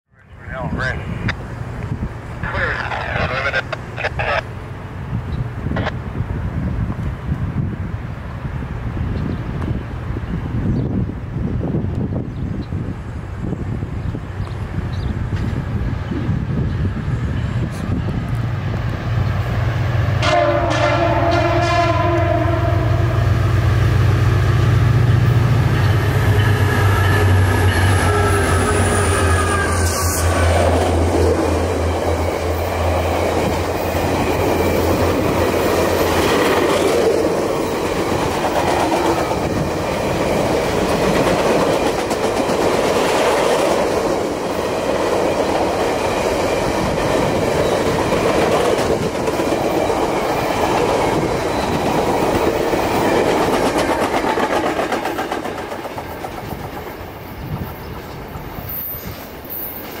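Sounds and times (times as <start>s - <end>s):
train wheels clattering on rails: 31.8s - 60.0s.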